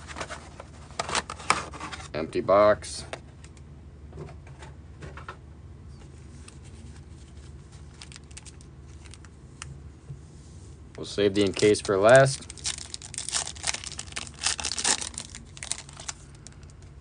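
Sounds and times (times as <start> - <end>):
steady low hum: 0.0 - 17.0
faint clicks and rustles of handling: 5.9 - 17.0.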